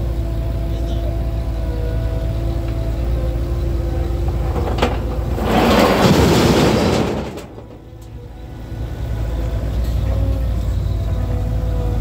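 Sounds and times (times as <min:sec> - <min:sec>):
loader engine running: 0:00.0 - 0:12.0
soil and rubble pouring into skip: 0:04.2 - 0:08.0.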